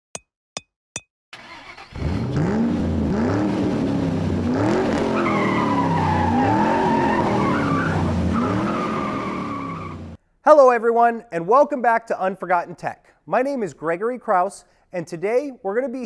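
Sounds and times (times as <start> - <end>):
car engine revving: 1.4 - 10.2
tires squealing: 4.4 - 10.2.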